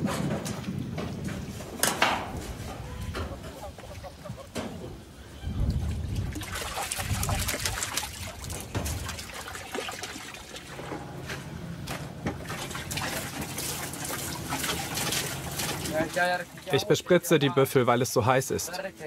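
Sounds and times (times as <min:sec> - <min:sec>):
water pouring from a hose: 0:05.7 - 0:10.9, 0:12.4 - 0:16.8.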